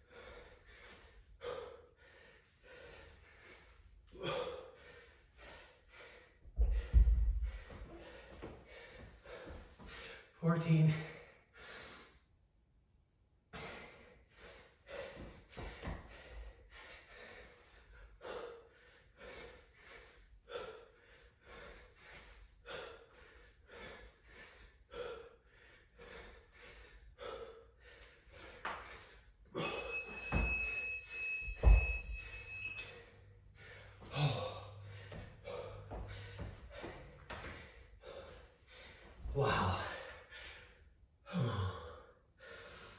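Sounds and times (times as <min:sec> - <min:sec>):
man gasping breaths: 0:00.0 - 0:12.3, 0:13.5 - 0:29.9, 0:33.0 - 0:42.9
interval timer long beep: 0:29.6 - 0:33.1.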